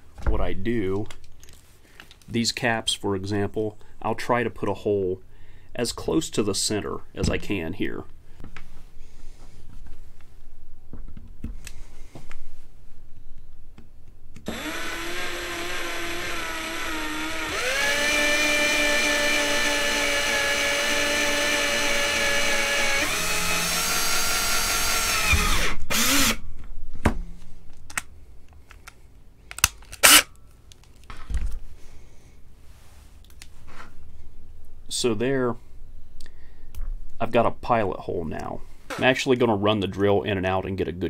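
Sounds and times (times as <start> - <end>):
electric drill motor whine: 14.5 - 26.4.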